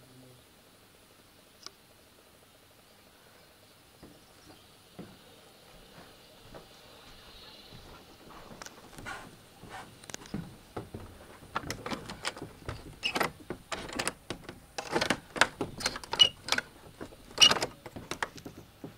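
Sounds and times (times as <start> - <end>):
door handle and latch clicking: 11.5 - 18.4.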